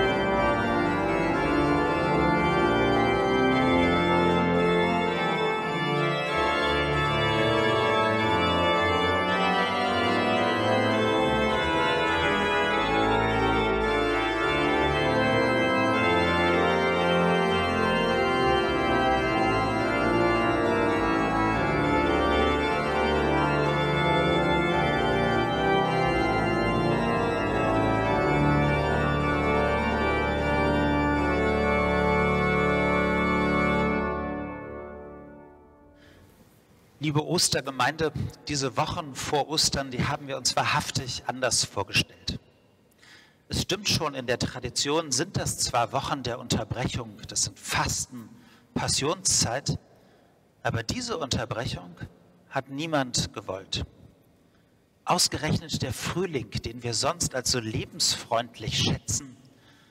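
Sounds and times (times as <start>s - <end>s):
pipe organ playing slow chords: 0.0s - 59.9s.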